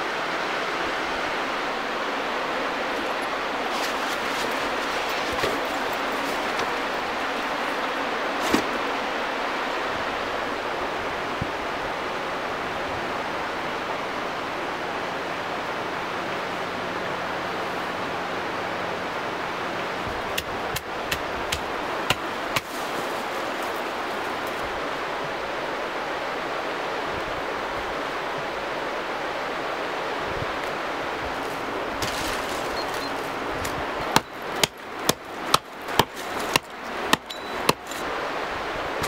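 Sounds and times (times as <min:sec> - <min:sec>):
steady rushing noise: 0:00.0 - 0:39.0
hatchet chopping wood: 0:08.4 - 0:08.8, 0:20.4 - 0:23.0, 0:33.6 - 0:38.1.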